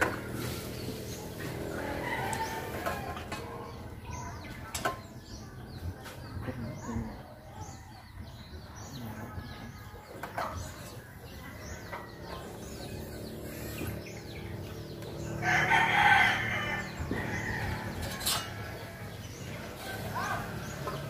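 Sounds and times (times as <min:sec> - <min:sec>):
small birds chirping: 0:00.0 - 0:21.0
rooster crowing: 0:01.7 - 0:03.1, 0:15.4 - 0:18.4.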